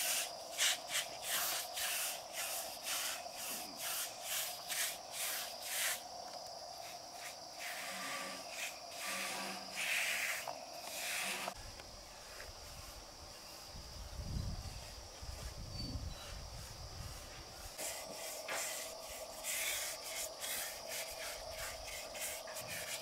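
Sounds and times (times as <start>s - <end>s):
hand sanding on wood: 0.0s - 6.0s, 16.6s - 23.0s
high insect chorus: 0.0s - 23.0s.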